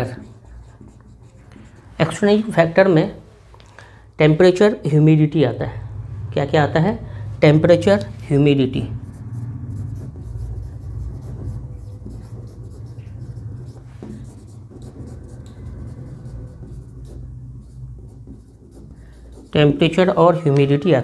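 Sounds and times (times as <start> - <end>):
pen scratching on paper: 0.0 - 2.7, 8.8 - 20.5
steady low hum: 0.0 - 20.4.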